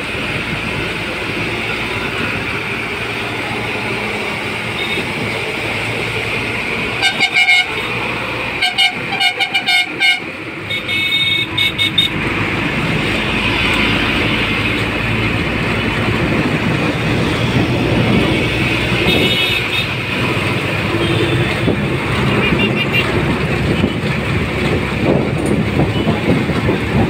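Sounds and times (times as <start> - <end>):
traffic engines and tyres: 0.0 - 27.0
high-pitched car horn: 4.7 - 5.1, 6.9 - 8.0, 8.6 - 12.2, 19.0 - 20.0, 20.9 - 23.1
vehicle horns honking: 4.7 - 5.2, 6.9 - 12.2, 19.0 - 20.0, 20.9 - 23.2, 25.9 - 26.2.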